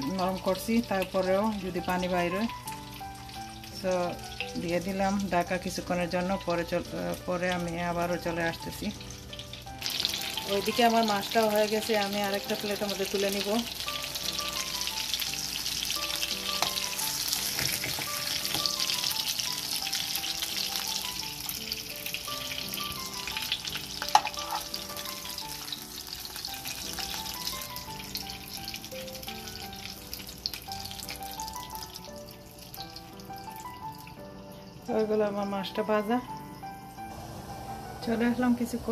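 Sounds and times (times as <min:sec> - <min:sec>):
fish sizzling in a frying pan: 0:00.0 - 0:38.9
spoon scraping in a pan: 0:24.1 - 0:24.8.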